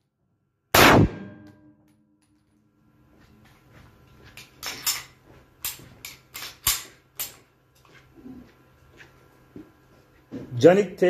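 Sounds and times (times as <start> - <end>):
pistol shots cracking: 0.8 - 1.6.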